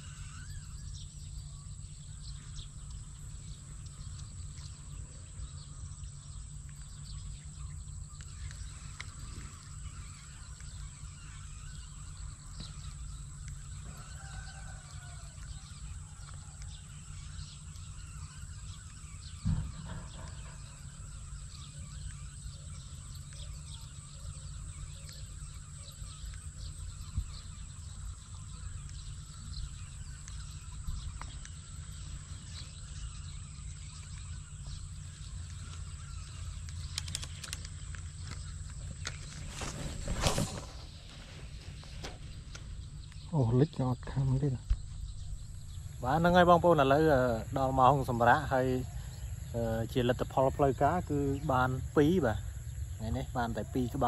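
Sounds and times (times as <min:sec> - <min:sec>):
faint bird chirps: 0:00.0 - 0:54.0
low outdoor rumble: 0:00.0 - 0:54.0
short thump: 0:19.4 - 0:20.7.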